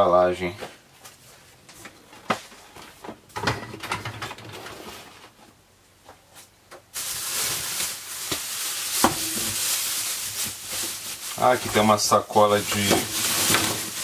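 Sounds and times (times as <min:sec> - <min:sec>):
plastic bag crinkling: 0:06.9 - 0:14.0.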